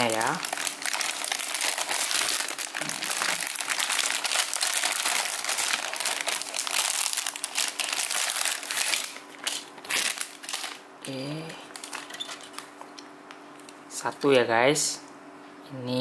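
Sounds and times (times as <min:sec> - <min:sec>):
plastic bags crinkling: 0:00.0 - 0:10.8, 0:11.6 - 0:12.9.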